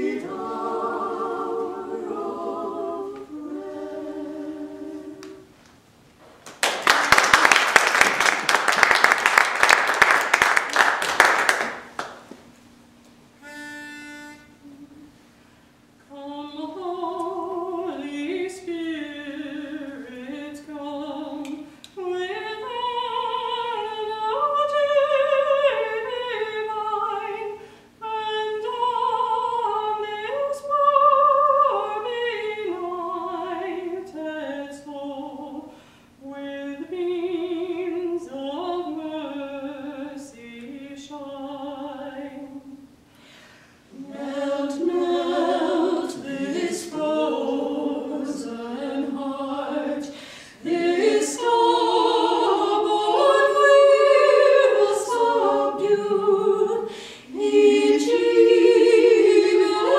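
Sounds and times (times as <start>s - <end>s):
women's vocal quartet singing: 0.0s - 5.6s, 16.1s - 42.9s, 43.8s - 59.9s
audience applause: 6.5s - 12.2s.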